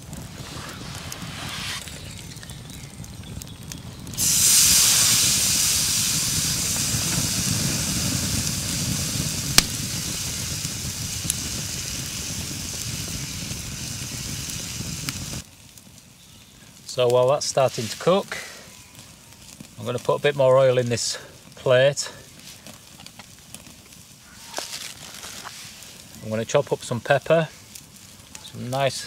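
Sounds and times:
sharp pop from fire: 0:00.0 - 0:11.9
steak sizzling on grill: 0:00.0 - 0:15.4, 0:17.0 - 0:29.0
campfire crackling: 0:00.0 - 0:29.0.

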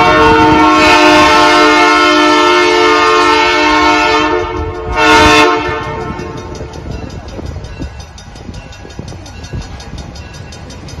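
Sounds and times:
locomotive horn chord: 0:00.0 - 0:06.4.

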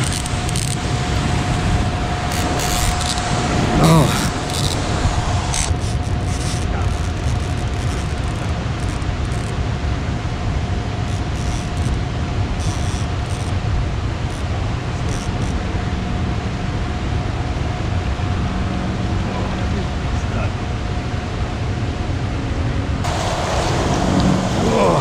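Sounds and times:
river water rushing: 0:00.0 - 0:18.6.

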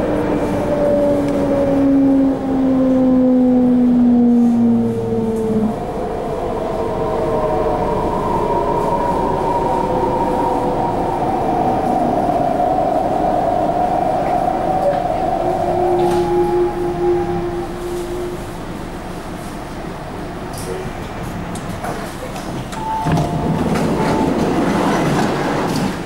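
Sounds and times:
steady hum: 0:00.0 - 0:20.6
wheels rumbling on rail: 0:00.0 - 0:26.0
train motor whine: 0:14.7 - 0:19.3.

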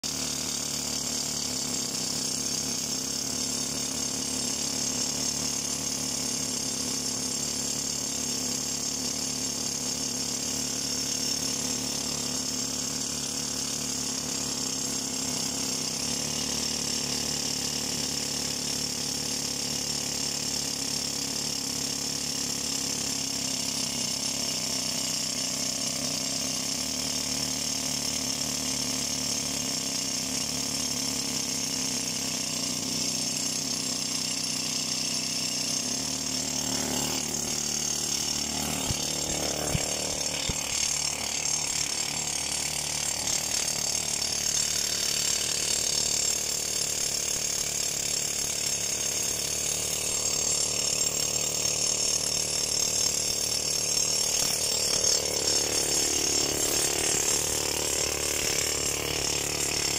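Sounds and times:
rock drill hammering: 0:00.0 - 0:59.9.

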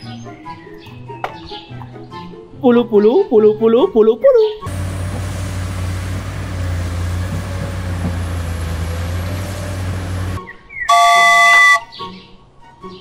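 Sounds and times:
diesel engines rumbling: 0:04.7 - 0:11.8
loud multi-pitch tone: 0:10.9 - 0:11.9.

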